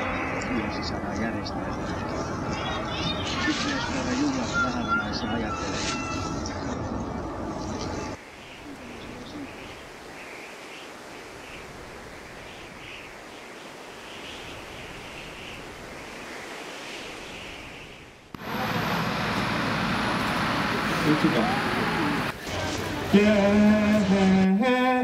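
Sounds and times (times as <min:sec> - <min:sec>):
wind-like hiss: 0:07.7 - 0:24.4
crowd murmuring: 0:18.4 - 0:24.4.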